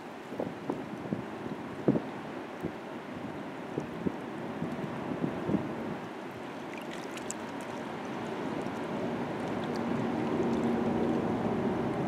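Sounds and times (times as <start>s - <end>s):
river water splashing on rocks: 6.0s - 12.0s.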